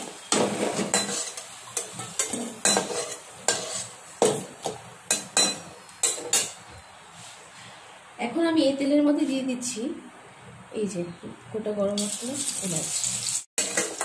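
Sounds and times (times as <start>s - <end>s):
oil sizzling: 0.0s - 6.9s, 12.0s - 14.0s
metal spatula scraping a pan: 0.3s - 4.0s, 13.6s - 14.0s.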